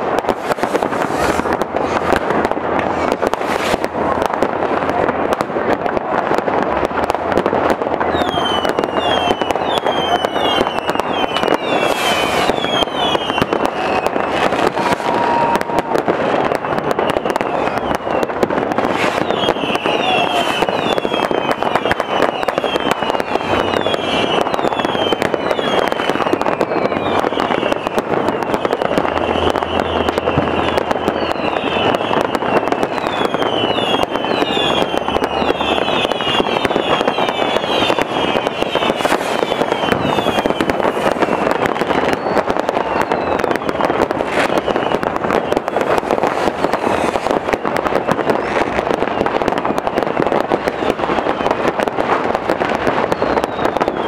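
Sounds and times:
firecrackers crackling: 0:00.0 - 0:54.0
rocket bangs: 0:00.0 - 0:54.0
whistles falling in pitch: 0:08.2 - 0:14.4, 0:19.1 - 0:40.7, 0:53.2 - 0:54.0.

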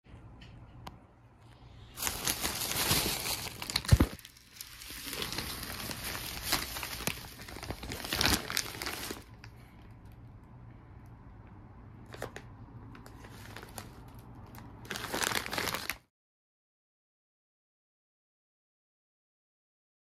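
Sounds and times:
plastic bag crinkling: 0:01.7 - 0:10.2, 0:12.0 - 0:16.1.

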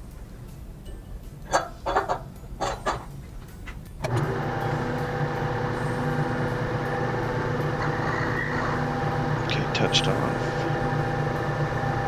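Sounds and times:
milling machine motor humming: 0:04.0 - 0:12.0.

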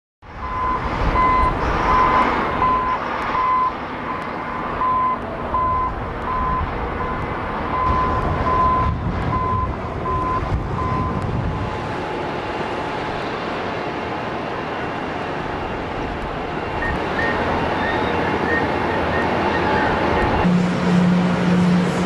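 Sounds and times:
low rumble of machinery: 0:00.2 - 0:22.0
reversing alarm beeping: 0:00.4 - 0:11.2, 0:16.8 - 0:22.0.

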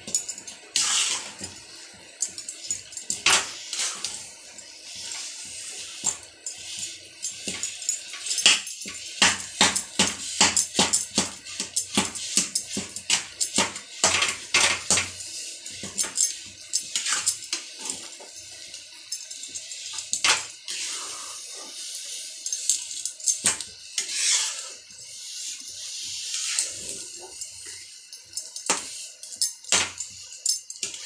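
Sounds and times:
spatula scraping a steel pan: 0:00.7 - 0:01.5, 0:03.3 - 0:06.0, 0:20.7 - 0:21.8, 0:24.0 - 0:27.9.

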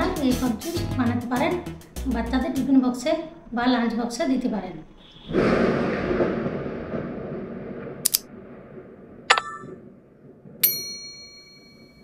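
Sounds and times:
whoosh: 0:03.1 - 0:09.8
button clicks: 0:09.3 - 0:09.7.

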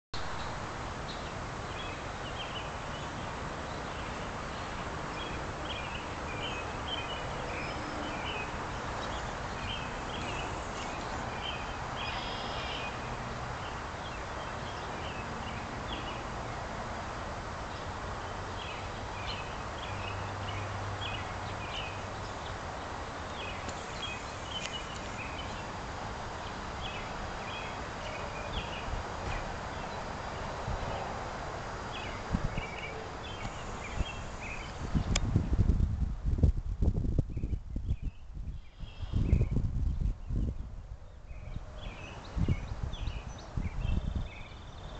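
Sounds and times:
background hiss: 0:00.2 - 0:35.1.

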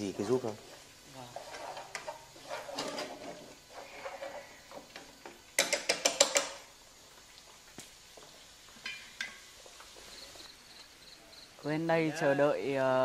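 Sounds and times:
scraping in a frying pan: 0:00.2 - 0:05.2.

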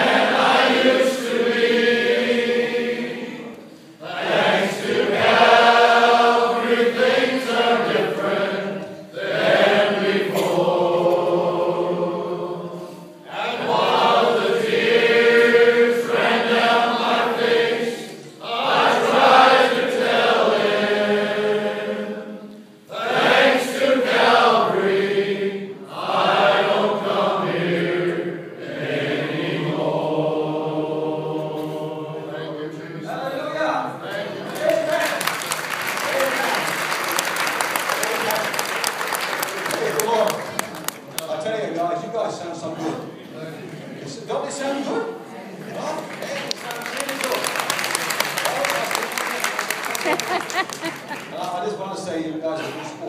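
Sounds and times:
men's choir singing a hymn: 0:00.0 - 0:35.4.

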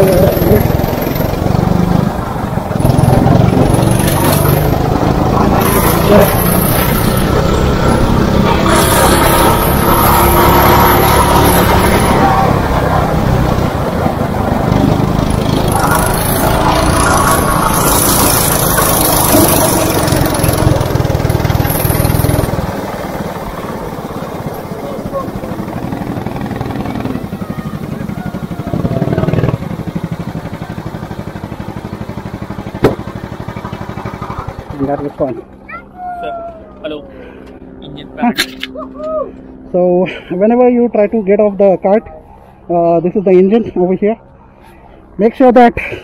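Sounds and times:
go-kart engine running: 0:00.0 - 0:46.0
sharp knock: 0:32.8 - 0:33.1.

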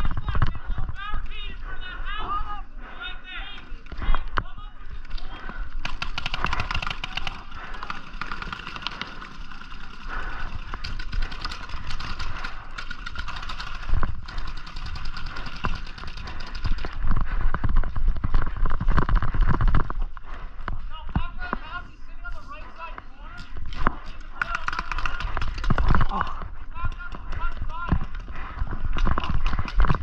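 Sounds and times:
paintball markers firing: 0:05.2 - 0:17.6, 0:23.4 - 0:30.0.

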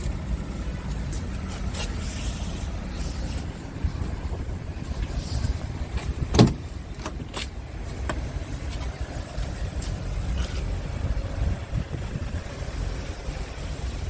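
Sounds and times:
wind rumble on microphone: 0:02.7 - 0:07.3, 0:08.6 - 0:14.0
truck door clunk: 0:05.9 - 0:08.3.

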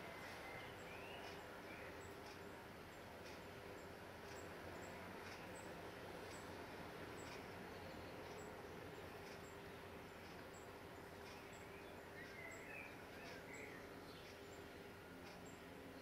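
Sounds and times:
faint outdoor hiss: 0:00.0 - 0:16.0
bird chirps: 0:00.1 - 0:02.2, 0:10.5 - 0:14.7.

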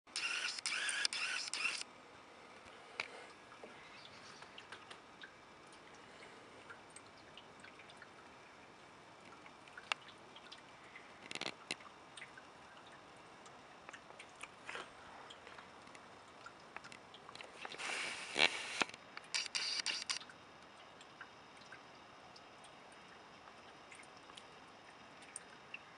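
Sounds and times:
small clicks: 0:00.1 - 0:01.9, 0:11.2 - 0:12.3, 0:16.8 - 0:21.8
faint outdoor air hiss: 0:00.1 - 0:25.9.

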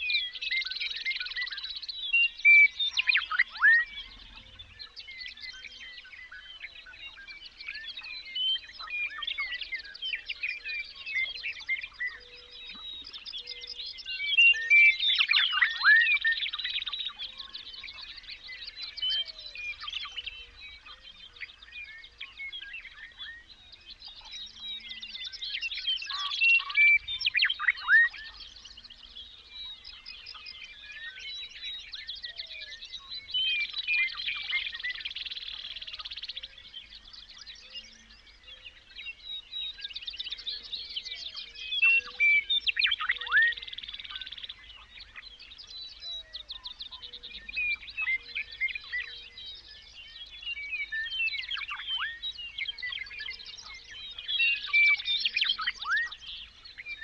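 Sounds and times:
songbirds singing in chorus: 0:00.0 - 0:57.0.

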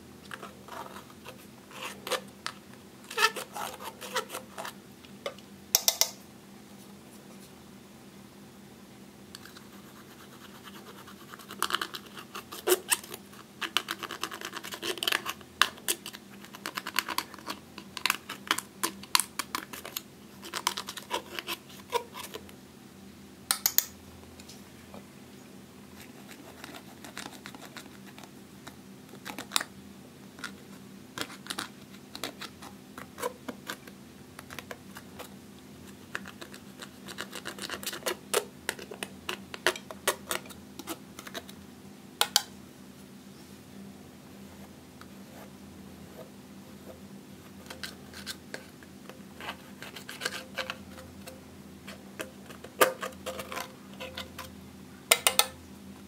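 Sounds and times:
metal pick scraping eyeshadow: 0:49.4 - 0:54.5.

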